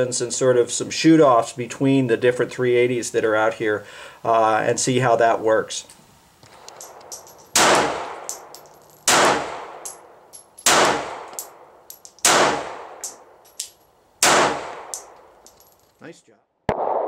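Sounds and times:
light high clinks: 0:06.4 - 0:12.3, 0:13.0 - 0:13.9, 0:14.8 - 0:16.0
pistol shots: 0:06.9 - 0:10.0, 0:10.6 - 0:11.6, 0:12.2 - 0:13.2, 0:14.2 - 0:15.2.

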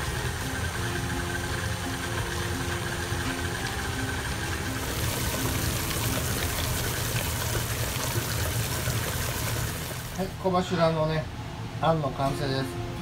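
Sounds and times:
stand mixer churning filling: 0:00.0 - 0:10.3.

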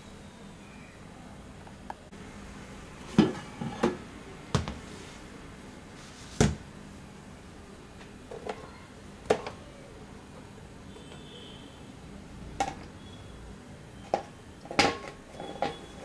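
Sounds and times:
plastic lid and pot clattering: 0:14.1 - 0:15.9.

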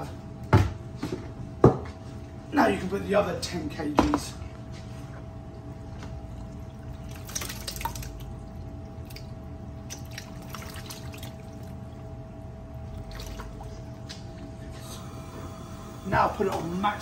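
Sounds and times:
steady low hum: 0:00.0 - 0:17.0
wet slaps and small splashes: 0:07.0 - 0:08.3, 0:09.0 - 0:11.8, 0:13.0 - 0:14.5.

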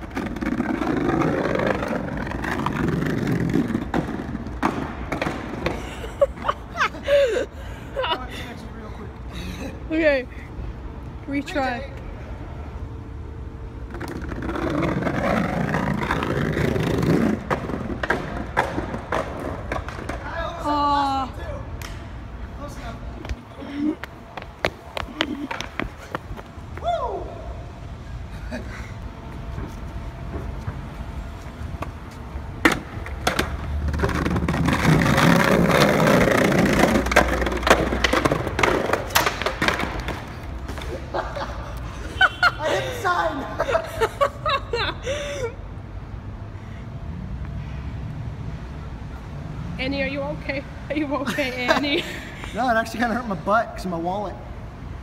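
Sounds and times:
skateboard wheels rolling on bricks: 0:00.0 - 0:06.5, 0:13.8 - 0:20.9, 0:23.2 - 0:26.6, 0:30.2 - 0:41.3.

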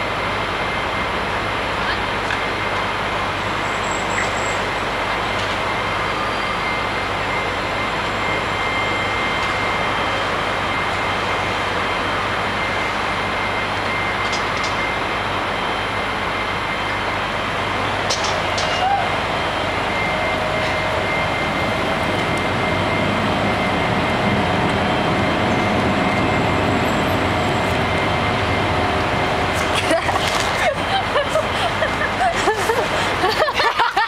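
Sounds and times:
thin high tone: 0:05.6 - 0:31.5.

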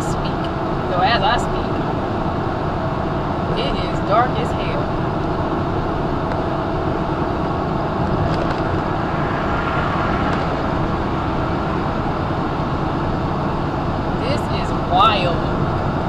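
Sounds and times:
truck engine and road noise: 0:00.0 - 0:16.0.

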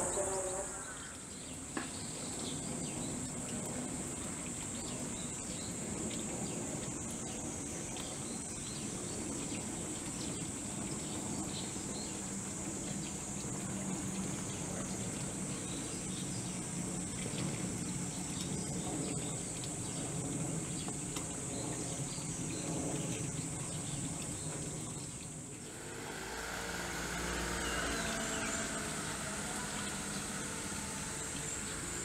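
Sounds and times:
insects buzzing: 0:00.0 - 0:32.0
low hum: 0:10.8 - 0:32.0.

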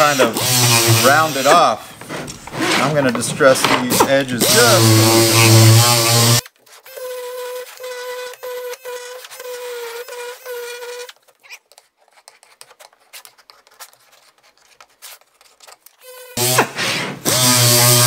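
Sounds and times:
air sander whining: 0:00.0 - 0:06.4, 0:16.4 - 0:18.0
faint scratches and ticks: 0:10.4 - 0:16.0.

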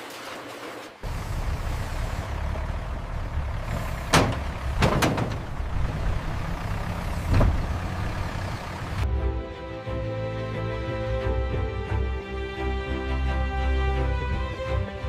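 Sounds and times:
idling truck engines: 0:01.0 - 0:09.1
background music: 0:09.0 - 0:15.0.

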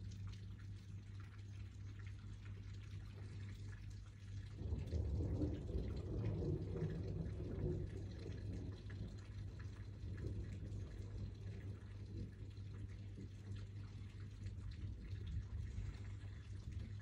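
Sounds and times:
steady rain: 0:00.0 - 0:17.0
water dripping: 0:00.0 - 0:17.0
thunder rolling: 0:04.6 - 0:12.3.

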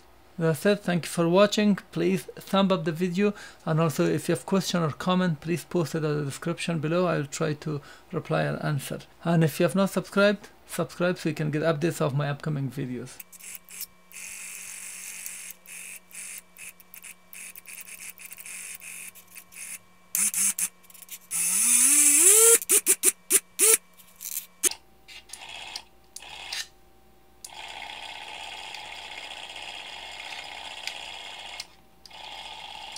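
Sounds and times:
electric motor whirring: 0:13.3 - 0:26.6.

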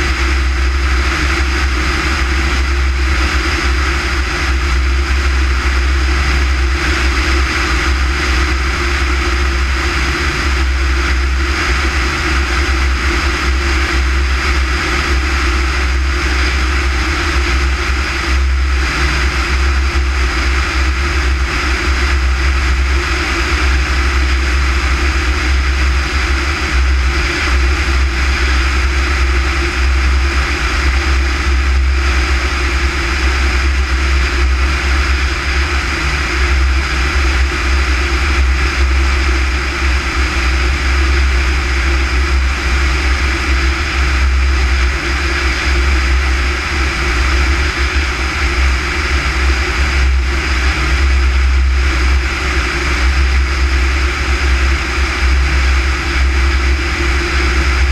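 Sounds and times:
airplane engine drone: 0:00.0 - 0:57.9
deep rumble: 0:00.0 - 0:57.9.

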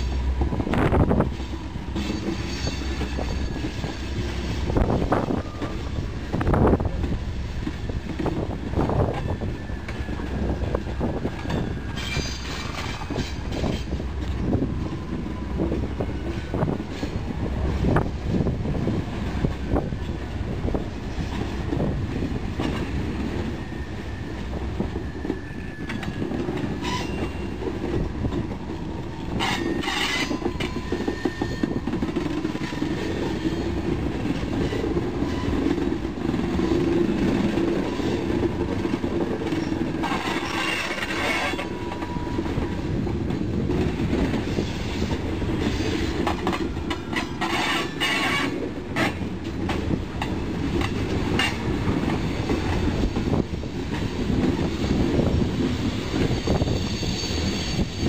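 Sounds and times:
clicks and knocks of rail cars: 0:00.0 - 0:58.0
train wheels rumbling on rail: 0:00.0 - 0:58.0
faint wheel squeal: 0:26.8 - 0:27.5, 0:56.3 - 0:58.0.

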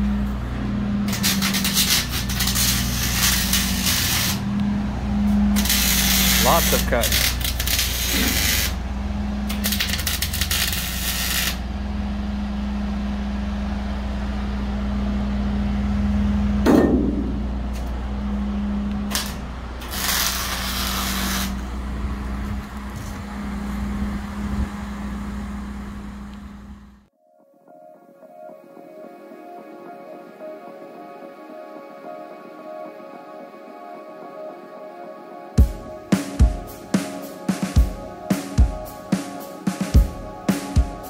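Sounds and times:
low machine hum: 0:00.0 - 0:27.1
welding arc crackling and hissing: 0:01.1 - 0:04.5, 0:05.5 - 0:08.8, 0:09.5 - 0:11.6, 0:19.1 - 0:21.7
sharp metal clank: 0:16.7 - 0:17.5.

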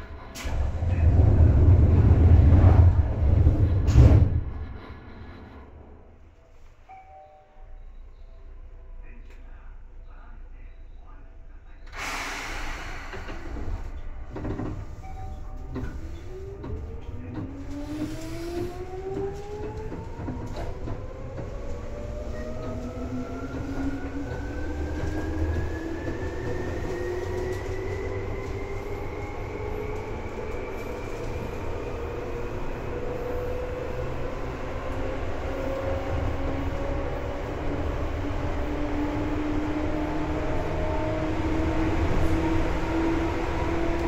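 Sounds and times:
low running rumble: 0:00.0 - 0:06.3.

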